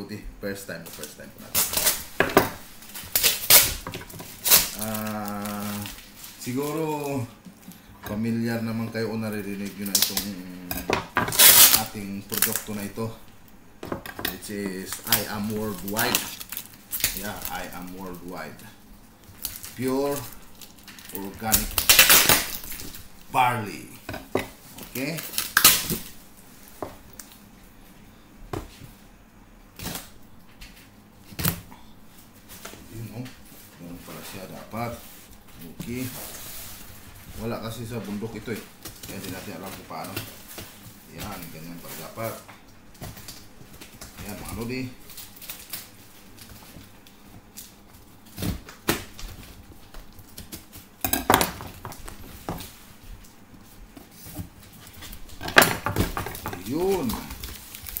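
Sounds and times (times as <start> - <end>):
handling knocks and rustles: 32.3 - 58.0.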